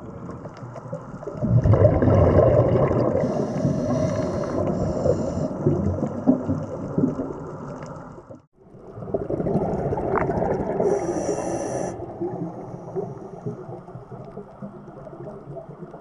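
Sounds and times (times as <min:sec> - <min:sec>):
underwater rumbling wash and bubbles: 0:00.0 - 0:16.0
high hiss: 0:10.9 - 0:12.0.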